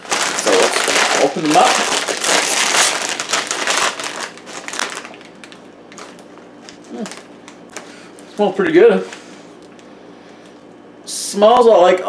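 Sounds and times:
potato chip bag crinkling: 0.0s - 8.0s.

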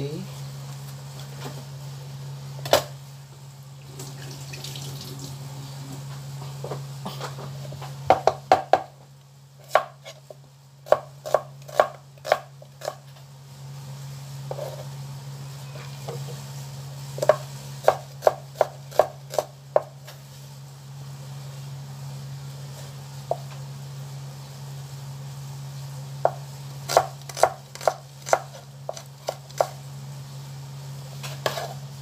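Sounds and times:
knife chopping on cutting board: 8.1s - 8.9s, 9.6s - 10.2s, 10.9s - 13.0s, 17.2s - 20.0s, 26.2s - 29.8s, 31.3s - 31.8s.

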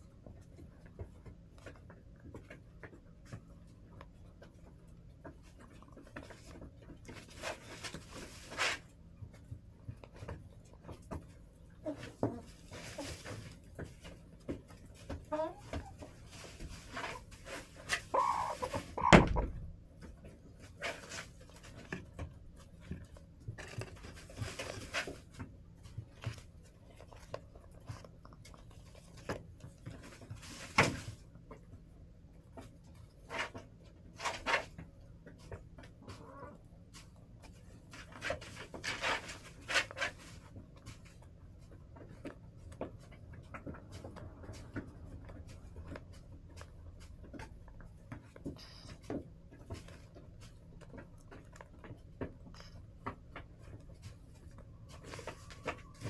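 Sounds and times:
hens pecking and scratching: 0.0s - 56.0s
hens clucking softly: 10.0s - 21.4s, 35.4s - 36.8s.

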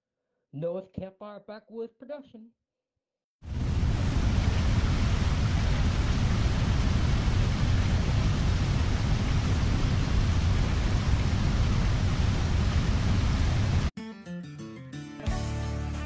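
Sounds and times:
loud rushing noise with low rumble: 3.5s - 13.9s.

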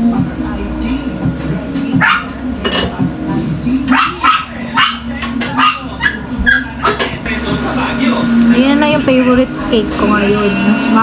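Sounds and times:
dog yapping: 2.0s - 2.3s, 3.9s - 7.0s.

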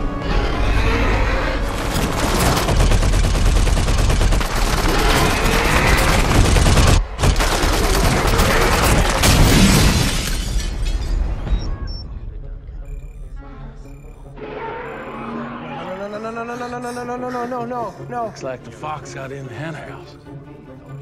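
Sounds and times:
rapid machine-gun fire: 1.8s - 9.7s.

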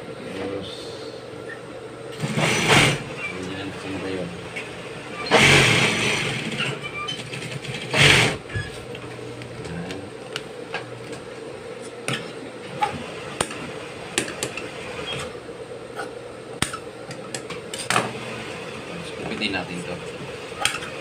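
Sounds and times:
sewing machine motor humming: 4.8s - 8.6s.

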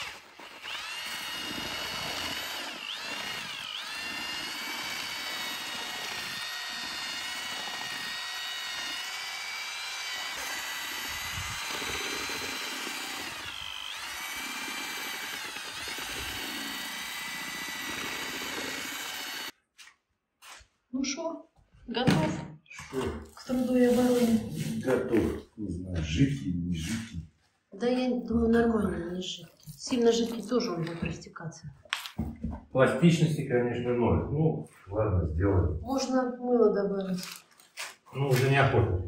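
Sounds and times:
drill-mixer whining: 0.0s - 19.6s.

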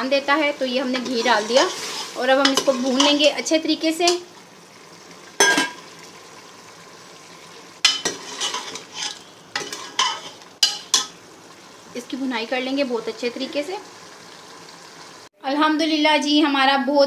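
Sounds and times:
meat sizzling in a pot: 0.0s - 15.3s
spoon scraping a pot: 0.9s - 3.3s, 7.8s - 11.2s.

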